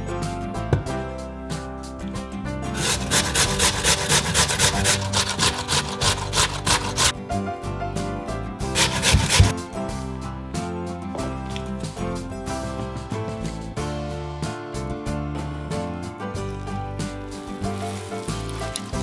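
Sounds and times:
potato grating on metal grater: 2.7s - 7.2s, 8.7s - 9.6s.

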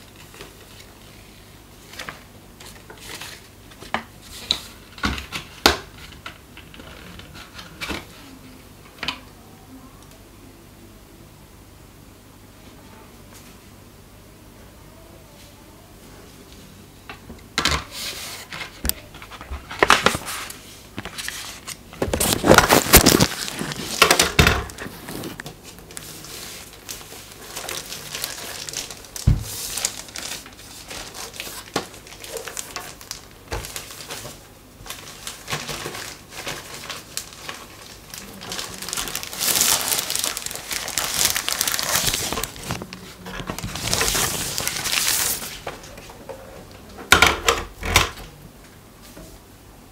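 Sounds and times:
plastic wrap crinkling: 17.9s - 46.0s.

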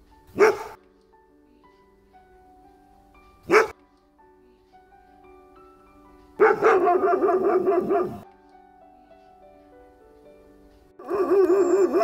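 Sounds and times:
soft background music: 0.0s - 12.0s
dog barking: 0.4s - 0.8s, 3.5s - 3.8s, 6.4s - 8.2s.

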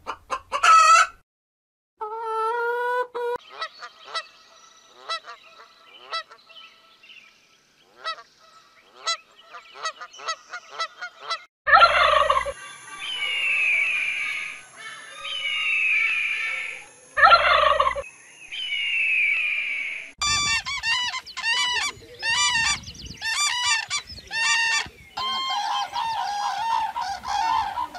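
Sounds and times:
waterfowl honking: 7.9s - 8.3s, 8.9s - 12.5s, 20.2s - 27.9s
descending whistled bird call: 12.4s - 27.9s
harsh bird call burst: 19.8s - 27.8s.

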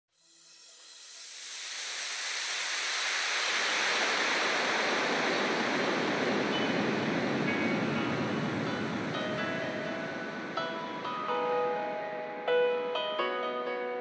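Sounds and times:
synthesized whoosh sweep: 0.2s - 12.5s
faint musical tones: 6.4s - 14.0s.

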